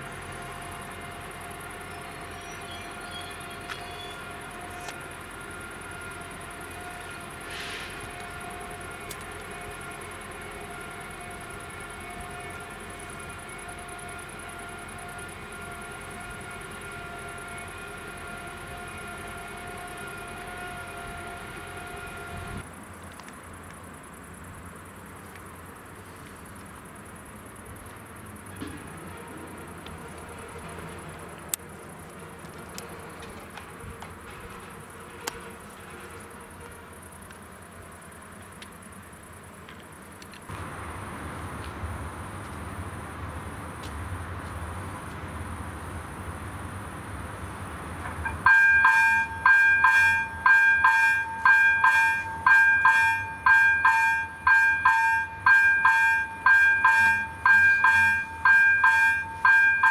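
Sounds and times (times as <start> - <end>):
insects chirping: 0.0 - 59.9
level crossing warning bell: 48.2 - 59.9.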